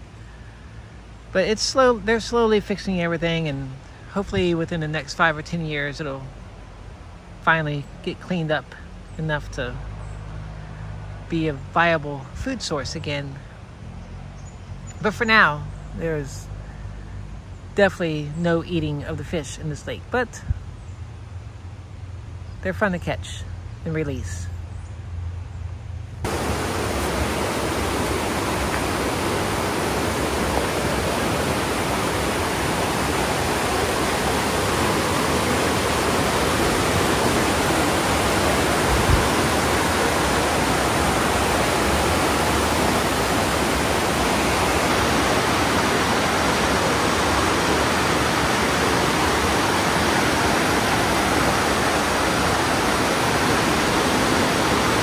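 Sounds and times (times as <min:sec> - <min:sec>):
falling water rushing: 0:00.0 - 0:06.9, 0:26.2 - 0:55.0.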